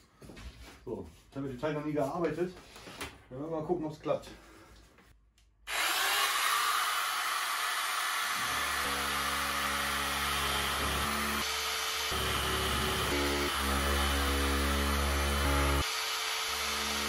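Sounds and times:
electric metal shears running: 0:05.7 - 0:17.0
shears cutting sheet steel: 0:05.7 - 0:17.0.

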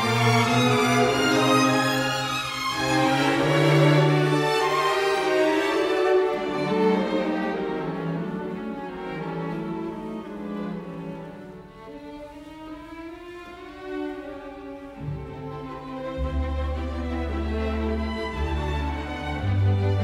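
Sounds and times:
slow violin and cello music: 0:00.0 - 0:20.0.

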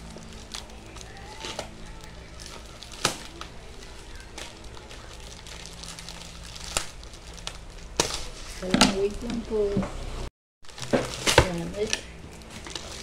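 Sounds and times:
low steady hum: 0:00.0 - 0:13.0
scissors snipping plastic: 0:00.2 - 0:05.8, 0:10.8 - 0:13.0.

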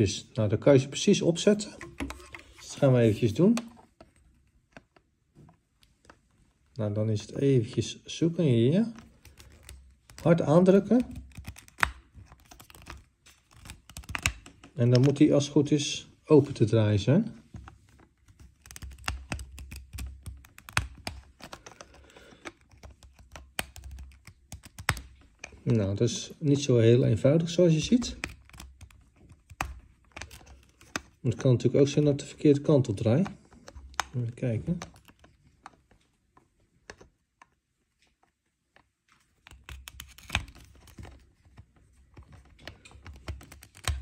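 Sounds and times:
small plastic clicks and scrapes: 0:09.0 - 0:15.1, 0:17.6 - 0:25.7, 0:27.8 - 0:31.2, 0:33.2 - 0:44.0.

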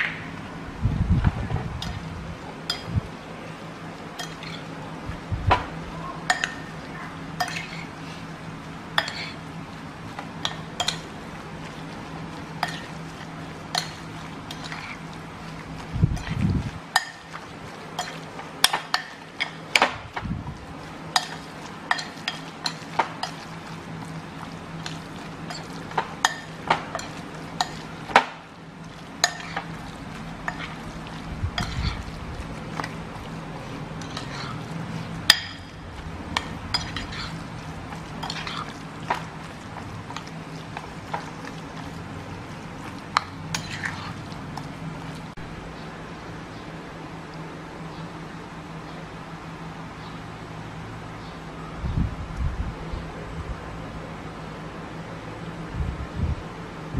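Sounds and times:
spoon clinking against bowl: 0:02.7 - 0:02.9, 0:04.2 - 0:04.6, 0:06.3 - 0:06.7, 0:07.4 - 0:07.8, 0:10.4 - 0:11.1, 0:18.0 - 0:19.6, 0:21.2 - 0:23.4, 0:25.5 - 0:27.9, 0:29.2 - 0:29.7, 0:35.3 - 0:37.3
spoon mashing minced meat: 0:04.2 - 0:04.8, 0:06.2 - 0:45.4.

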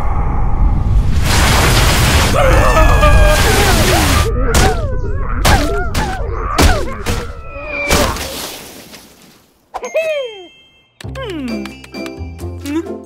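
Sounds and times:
falling tone with chime: 0:09.9 - 0:11.0.

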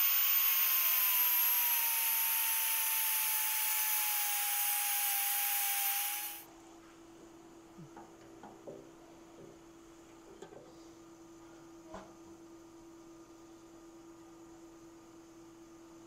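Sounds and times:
angle grinder cutting metal: 0:00.0 - 0:06.4.

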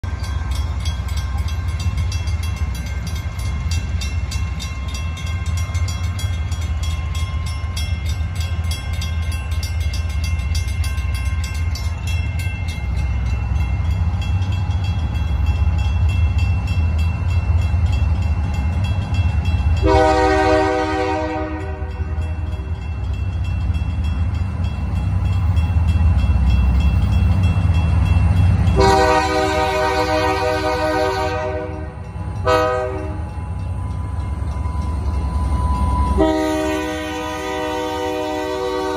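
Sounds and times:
railroad crossing bells ringing: 0:00.0 - 0:38.9
locomotive horn blast: 0:19.8 - 0:22.4, 0:28.8 - 0:33.3, 0:36.1 - 0:38.9.

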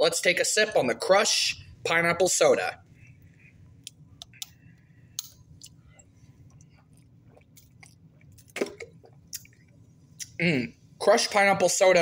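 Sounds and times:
person gulping: 0:06.6 - 0:10.7.

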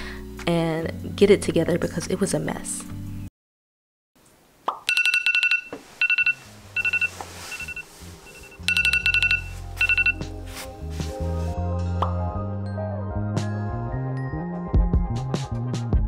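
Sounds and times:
smartphone alarm beeping: 0:04.9 - 0:10.2.

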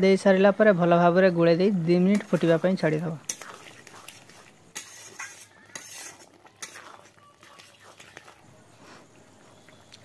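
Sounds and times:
metal spatula scraping a wok: 0:02.0 - 0:08.4.

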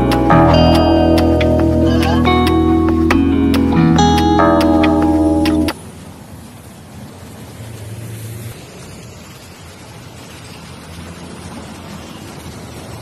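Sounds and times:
coach engine hum: 0:00.0 - 0:05.7
passing vehicles rushing: 0:00.0 - 0:13.0.

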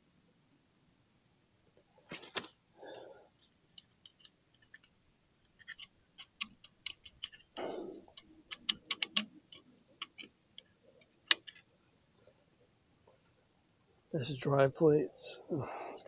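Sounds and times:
metal plates clicking and clinking: 0:03.3 - 0:11.7.

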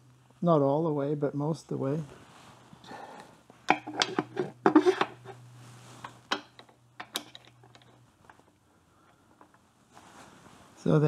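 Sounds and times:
metal parts clicking and clinking: 0:06.3 - 0:08.5.

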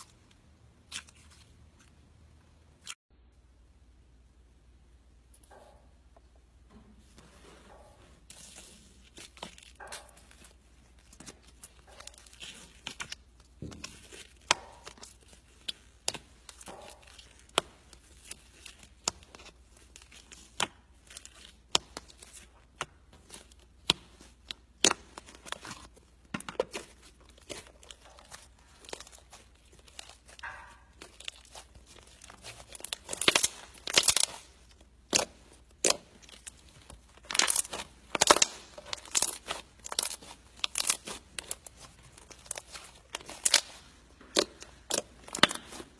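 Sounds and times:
slime clicking and popping: 0:27.4 - 0:45.8.

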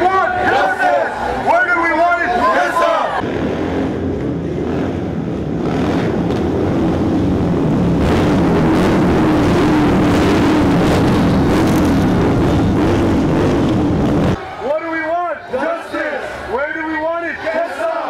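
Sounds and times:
motorcycles riding past: 0:03.0 - 0:14.4.

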